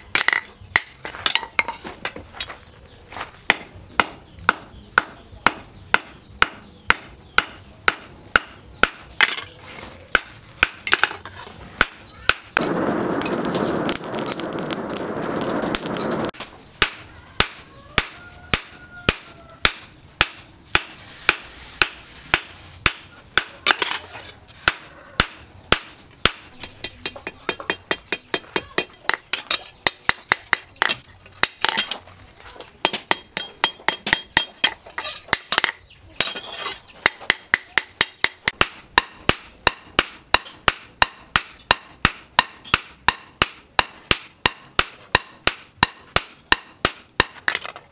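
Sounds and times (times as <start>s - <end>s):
steady rushing noise: 12.6s - 17.1s.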